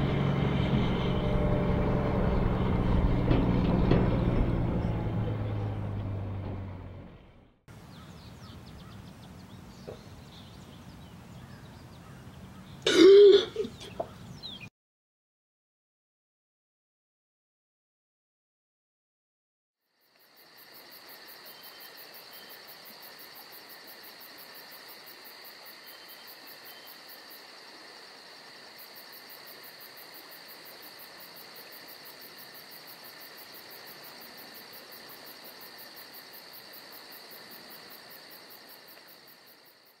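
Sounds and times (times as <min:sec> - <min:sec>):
insect chorus chirring: 0:19.9 - 0:40.0.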